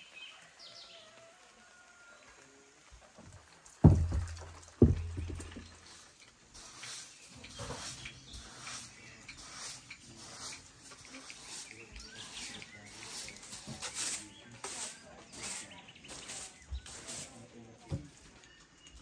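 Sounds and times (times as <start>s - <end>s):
soft knock: 3.8s - 5.6s
broom sweeping a rug: 4.8s - 18.4s.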